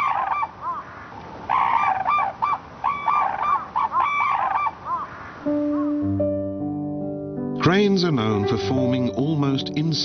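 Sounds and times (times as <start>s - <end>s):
cranes calling: 0.0s - 6.1s.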